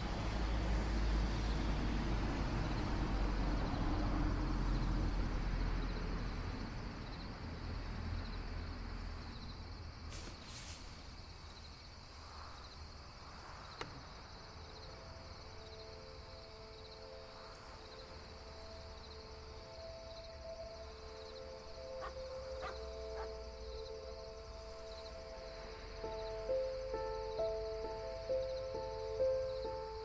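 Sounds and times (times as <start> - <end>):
car pulling away: 0.0 - 10.9
crickets chirping: 0.2 - 30.0.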